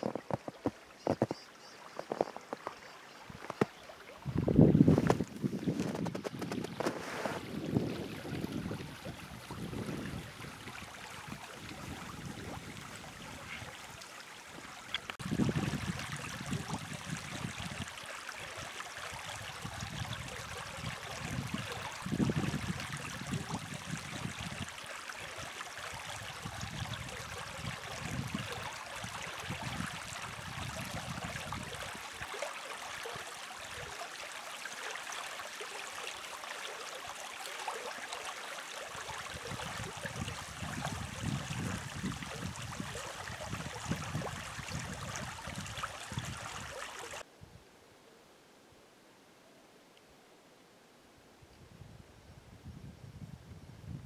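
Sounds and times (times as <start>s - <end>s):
stream water running: 0.0s - 47.3s
wind buffeting microphone: 4.2s - 13.7s, 15.2s - 17.9s, 19.2s - 24.7s, 26.1s - 32.0s, 39.2s - 46.8s, 51.6s - 54.0s.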